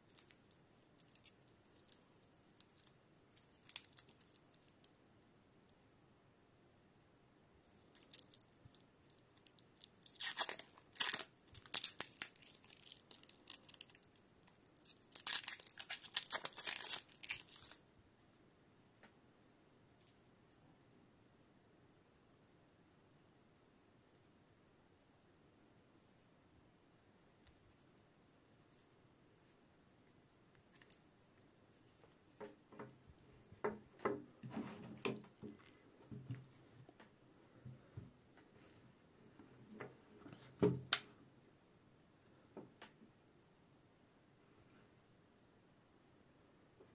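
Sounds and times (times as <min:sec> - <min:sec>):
cable rustling through fingers: 0:00.0 - 0:05.9, 0:07.6 - 0:18.6, 0:27.4 - 0:33.7.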